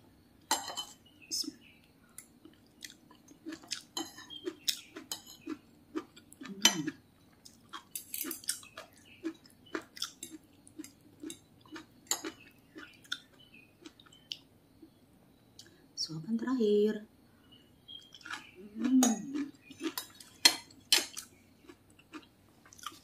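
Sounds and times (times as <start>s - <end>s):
cutlery scraping and clinking on plate: 0.5s - 1.0s, 4.0s - 4.4s, 5.1s - 5.5s, 7.9s - 8.6s, 19.7s - 21.2s
close-up chewing: 2.4s - 14.4s, 17.9s - 23.0s.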